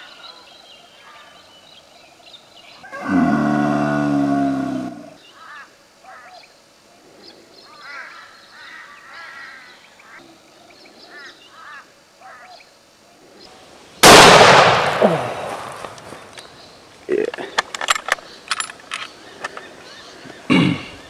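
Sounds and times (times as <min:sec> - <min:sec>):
deer bellowing: 0:02.9 - 0:05.2
rifle shot echoing: 0:14.0 - 0:16.1.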